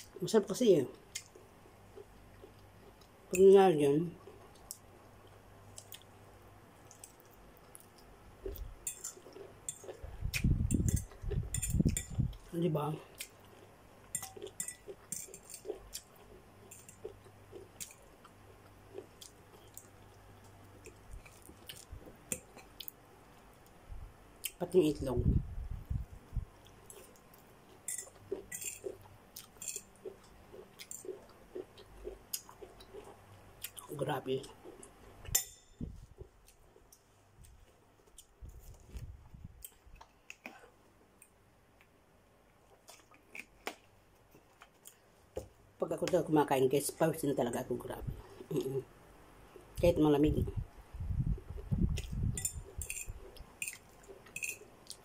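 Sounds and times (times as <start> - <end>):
person chewing noodles: 4.2 - 6.2, 6.8 - 12.5, 13.1 - 23.0, 26.6 - 33.9.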